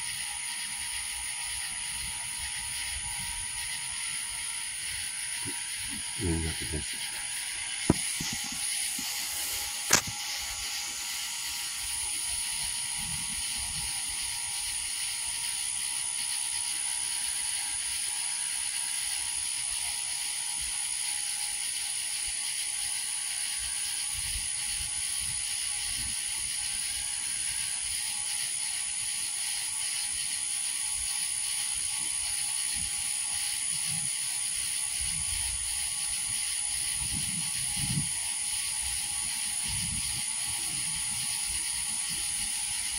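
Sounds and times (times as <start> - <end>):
high-pitched whine: 0.0 - 18.7, 30.0 - 42.9
sharp click: 9.8 - 10.2.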